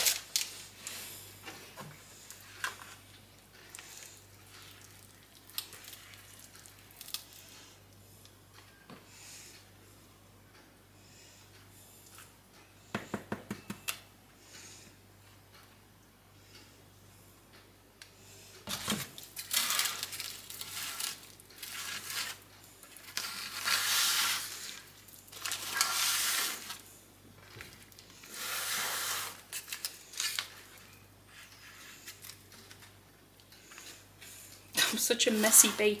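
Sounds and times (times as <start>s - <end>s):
knock: 13.0s - 13.8s
spatula scraping batter: 19.4s - 26.8s.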